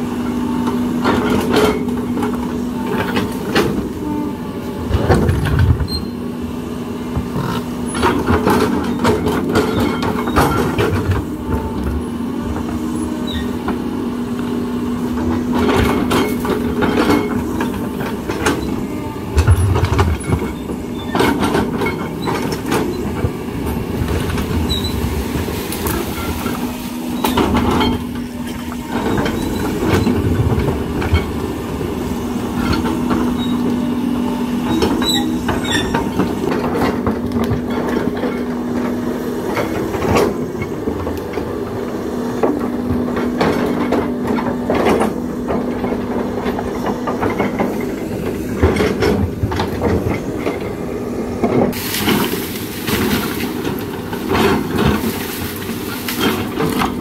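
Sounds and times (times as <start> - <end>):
excavator diesel engine whining: 0.0 - 57.0
bucket scraping through soil: 51.7 - 57.0.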